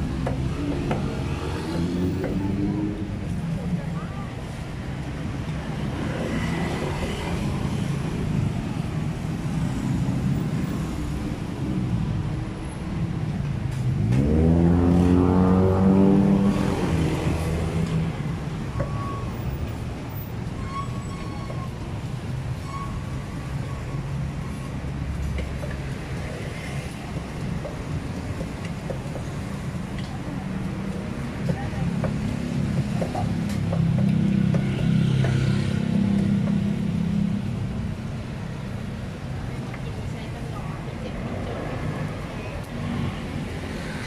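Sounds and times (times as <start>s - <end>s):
vehicle engine revving: 14.0s - 18.1s.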